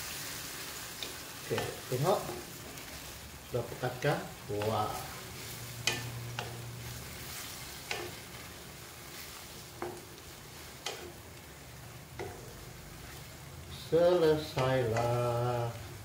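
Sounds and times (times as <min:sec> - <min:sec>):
soft steady sizzle: 0:00.0 - 0:16.0
spatula tapping a pan: 0:01.0 - 0:02.9, 0:03.8 - 0:11.4, 0:12.0 - 0:13.2, 0:14.0 - 0:15.8.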